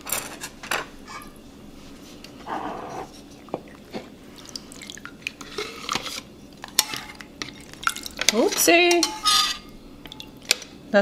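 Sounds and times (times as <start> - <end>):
liquid dripping and splashing: 3.4 - 8.4, 10.0 - 10.6.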